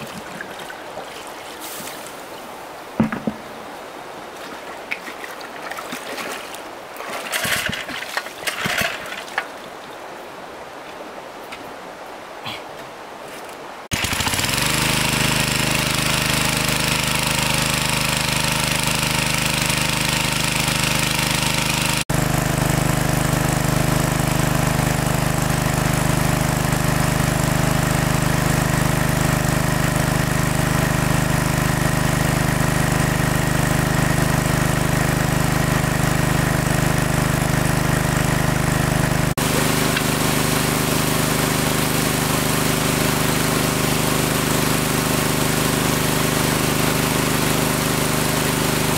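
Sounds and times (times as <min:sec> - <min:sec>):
small engine running steadily: 0:13.9 - 0:48.9.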